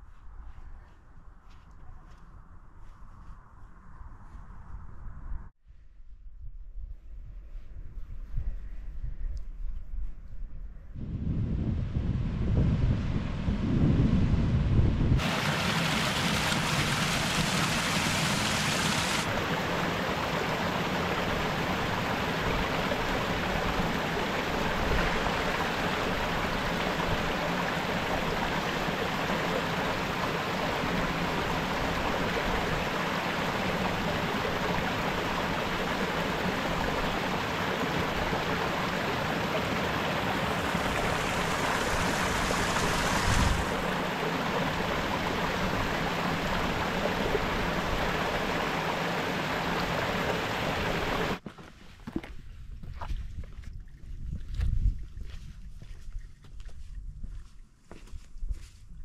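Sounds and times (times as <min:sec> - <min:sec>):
stream water rushing: 0:15.2 - 0:51.4.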